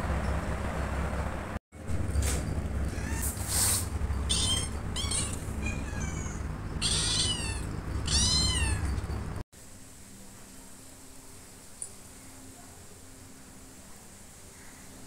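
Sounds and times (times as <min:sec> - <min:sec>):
steady low hum: 0:00.0 - 0:15.0
kitten meowing: 0:02.9 - 0:03.4, 0:04.2 - 0:09.0.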